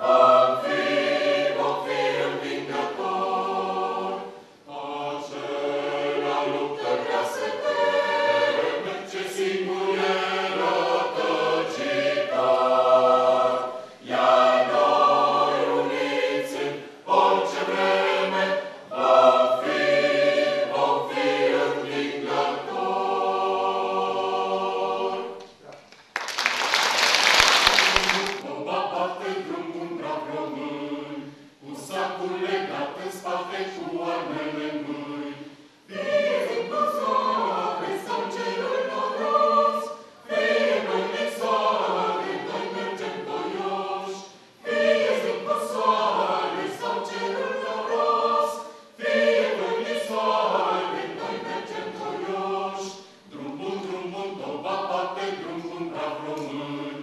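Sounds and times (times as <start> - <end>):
choir singing unaccompanied: 0.0 - 25.5, 27.4 - 57.0
applause: 25.7 - 28.4.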